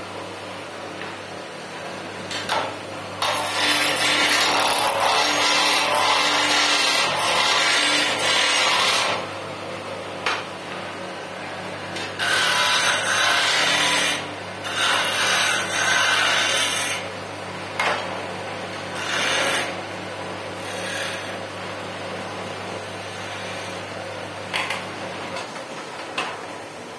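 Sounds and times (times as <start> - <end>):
tool scraping spinning wood: 3.2 - 9.2, 12.0 - 17.0, 18.9 - 19.8, 20.6 - 21.4, 22.8 - 23.8
wood lathe humming: 3.2 - 9.2, 12.2 - 17.0, 20.6 - 21.4, 22.8 - 23.8.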